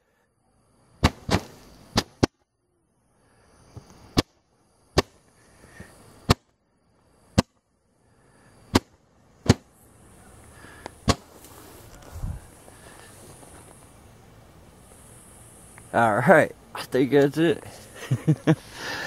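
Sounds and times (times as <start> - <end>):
faint hiss: 0.0 - 19.0
firework pops: 1.0 - 2.4, 3.8 - 4.4, 5.0 - 5.2, 6.2 - 6.6, 8.7 - 9.7, 11.0 - 11.5
low rustle: 10.2 - 14.1.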